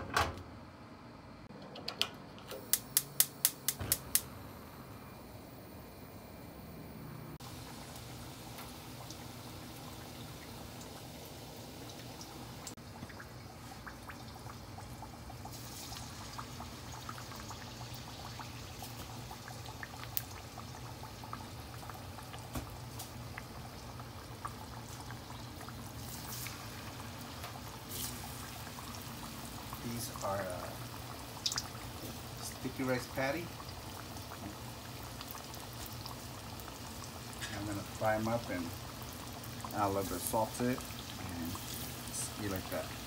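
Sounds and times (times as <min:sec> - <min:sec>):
hot oil sizzling and crackling: 0:07.3 - 0:43.0.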